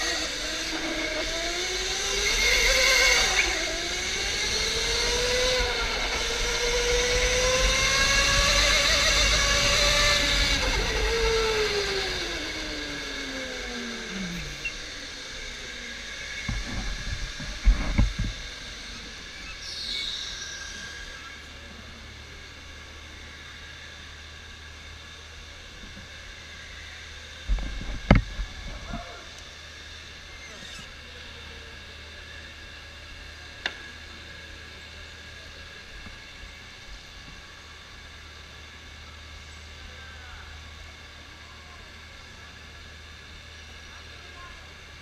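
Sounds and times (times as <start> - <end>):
electric motor whining: 0.0 - 25.0, 25.6 - 34.8.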